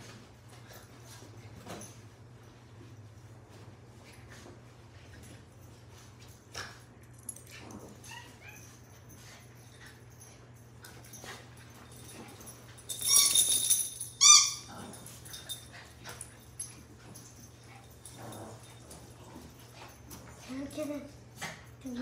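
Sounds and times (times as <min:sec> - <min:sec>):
faint rustles and paw taps: 0:00.0 - 0:07.6
squeaky toy squeaking: 0:14.2 - 0:14.7.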